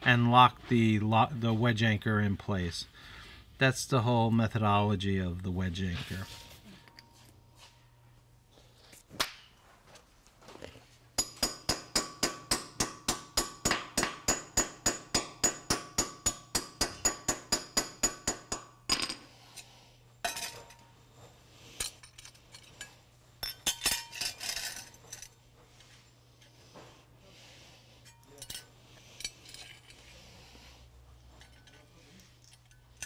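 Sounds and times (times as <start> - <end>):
metal clinks and clanks: 20.2 - 20.9, 21.7 - 25.4, 28.0 - 30.1, 31.3 - 33.0.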